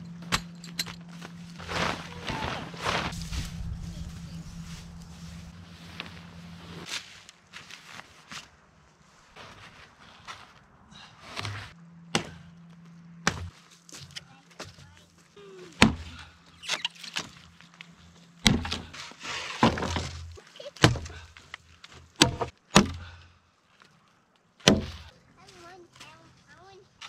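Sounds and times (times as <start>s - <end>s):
axe chopping log: 11.4s - 12.5s, 13.2s - 13.6s, 15.8s - 16.2s, 18.4s - 19.0s, 19.6s - 21.3s, 22.2s - 23.2s, 24.6s - 25.1s.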